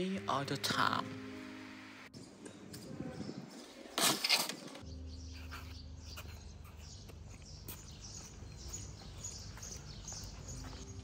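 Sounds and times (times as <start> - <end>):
soft music: 0.0 - 2.2, 4.8 - 11.0.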